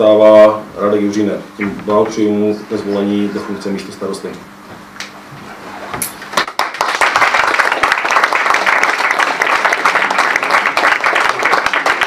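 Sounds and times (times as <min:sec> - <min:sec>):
small group applauding: 0:06.3 - 0:12.0.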